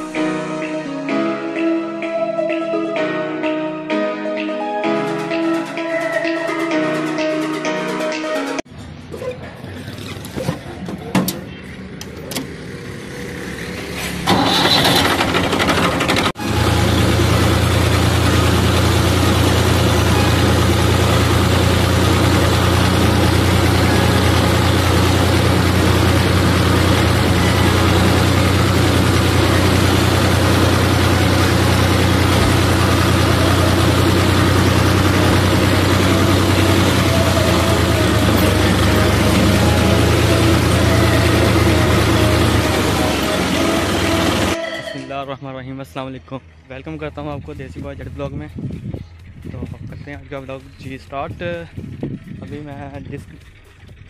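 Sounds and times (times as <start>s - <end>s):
diesel tractor engine running: 11.5s - 44.6s, 45.9s - 54.0s
tractor starter cranking: 14.0s - 44.6s.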